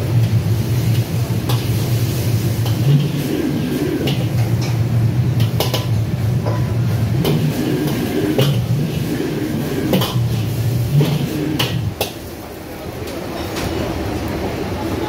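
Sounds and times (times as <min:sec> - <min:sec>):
gas burner and hood roar: 0:00.0 - 0:15.0
utensils clanking on pans: 0:00.2 - 0:12.2.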